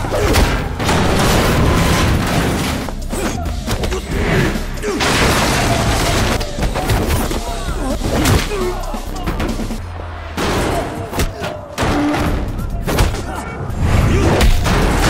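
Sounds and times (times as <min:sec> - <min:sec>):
people shouting: 0:00.0 - 0:02.2, 0:02.8 - 0:15.0
punches: 0:00.0 - 0:09.8, 0:14.1 - 0:15.0
action music: 0:00.0 - 0:15.0.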